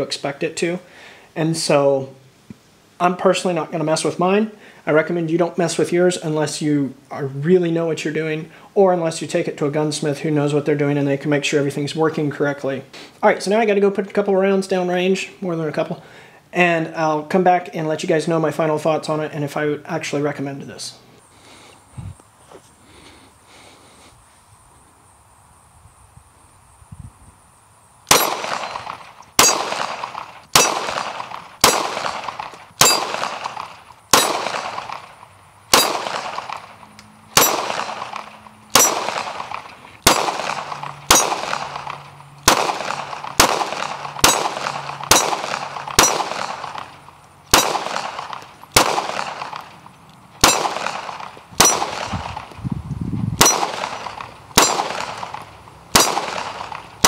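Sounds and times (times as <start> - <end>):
pistol shots with ringing tail: 28.1 - 52.6, 53.4 - 57.0.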